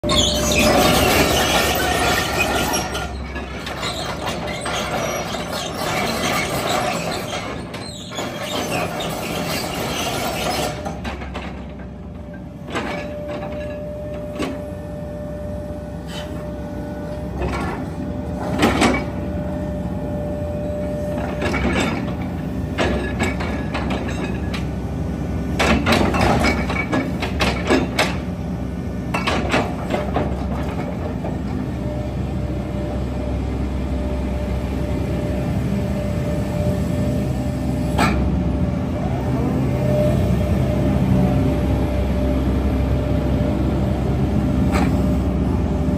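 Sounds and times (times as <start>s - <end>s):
excavator diesel engine running: 0.0s - 45.9s.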